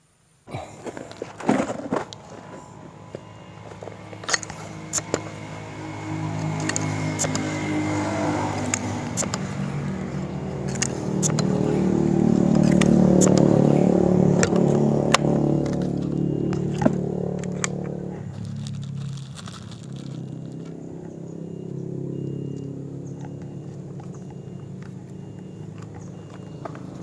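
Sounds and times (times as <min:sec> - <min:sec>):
vehicle engine passing by: 0:00.8 - 0:27.0
sharp clicks: 0:06.4 - 0:07.5, 0:08.6 - 0:10.0, 0:10.6 - 0:11.6, 0:12.5 - 0:13.5.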